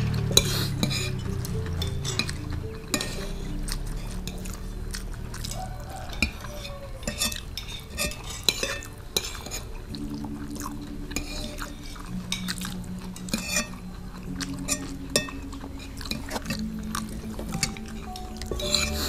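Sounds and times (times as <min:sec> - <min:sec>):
spoons clinking against plates: 0:00.1 - 0:04.7, 0:05.5 - 0:10.1, 0:17.2 - 0:19.0.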